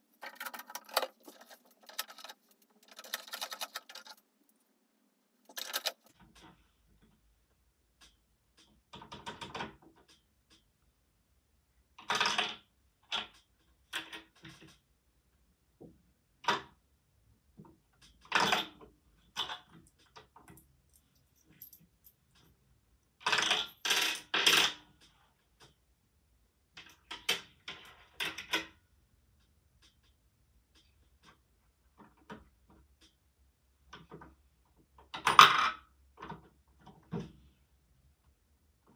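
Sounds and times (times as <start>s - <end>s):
coin rattling in plastic mechanism: 0.2s - 4.2s, 5.5s - 6.1s, 23.2s - 24.8s.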